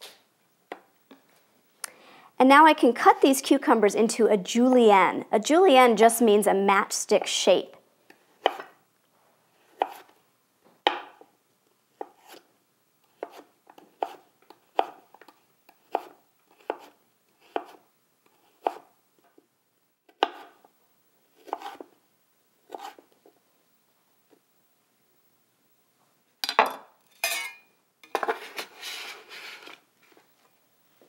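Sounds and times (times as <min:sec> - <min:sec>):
knife cutting on wooden board: 0:08.4 - 0:08.7, 0:09.6 - 0:10.1, 0:13.2 - 0:15.0, 0:15.8 - 0:18.9, 0:21.4 - 0:21.9, 0:22.7 - 0:23.1.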